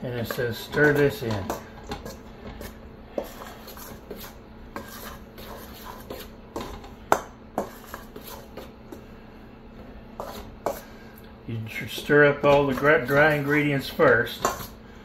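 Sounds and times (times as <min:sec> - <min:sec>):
utensil scraping metal bowl: 0:00.0 - 0:07.0, 0:07.6 - 0:08.7, 0:10.2 - 0:10.9, 0:11.7 - 0:14.8.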